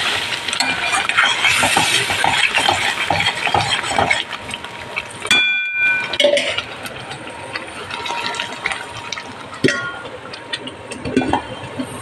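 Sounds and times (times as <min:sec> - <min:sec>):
wooden spatula scraping curry: 0:01.2 - 0:04.3.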